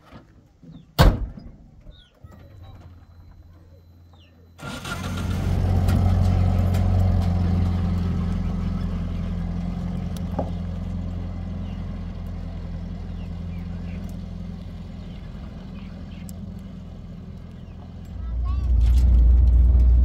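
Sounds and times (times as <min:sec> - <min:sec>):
vehicle engine running: 0:04.1 - 0:20.0.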